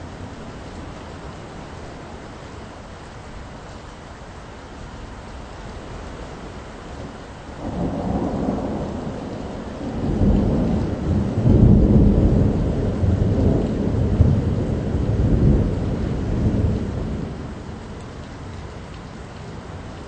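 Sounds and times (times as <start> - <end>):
steady rain: 0.0 - 20.0
rolling thunder: 7.6 - 18.0.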